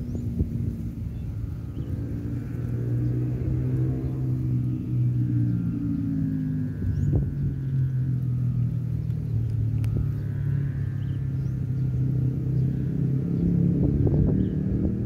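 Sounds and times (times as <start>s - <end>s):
low engine drone: 0.0s - 15.0s
faint clicks: 9.0s - 10.2s.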